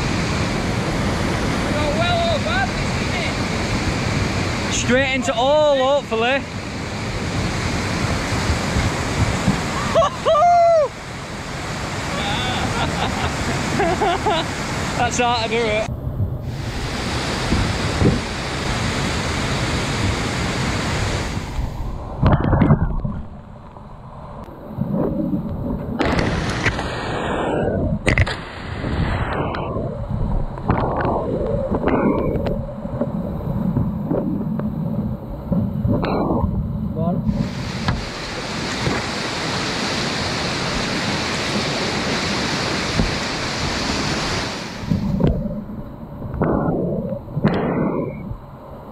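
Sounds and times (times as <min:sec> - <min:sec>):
river rapids rushing: 0:00.0 - 0:15.9, 0:16.5 - 0:22.0, 0:37.4 - 0:45.1.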